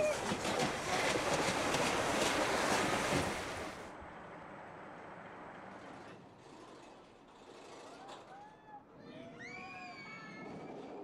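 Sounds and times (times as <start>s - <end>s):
rushing water and spray: 0.0s - 3.9s.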